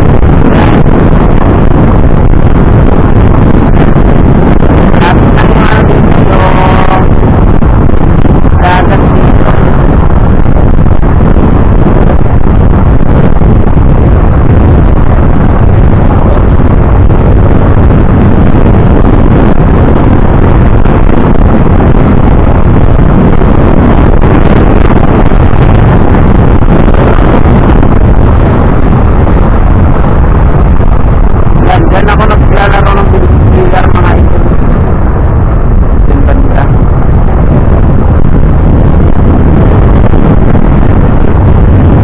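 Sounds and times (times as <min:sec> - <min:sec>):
road noise: 0:00.0 - 0:42.0
wind rush on microphone: 0:00.0 - 0:42.0.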